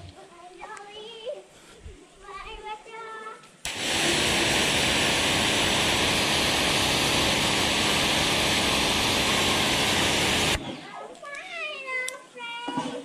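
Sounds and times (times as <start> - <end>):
pressure washer water jet hissing: 3.7 - 10.6
pump motor hum: 3.7 - 10.7.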